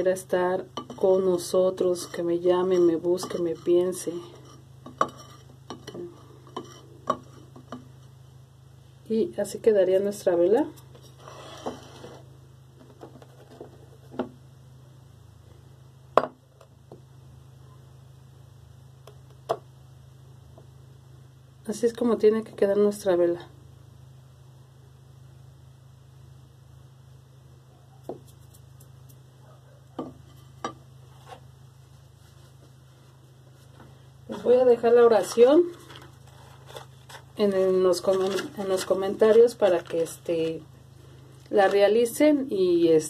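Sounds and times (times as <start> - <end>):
steady low hum: 0.0 - 43.0
candle and dishes knocking on table: 16.2 - 16.4, 30.0 - 30.8.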